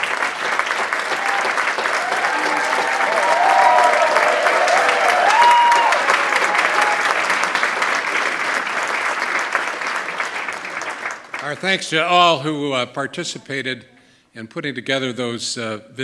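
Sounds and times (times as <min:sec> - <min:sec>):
audience applauding: 0:00.0 - 0:11.8.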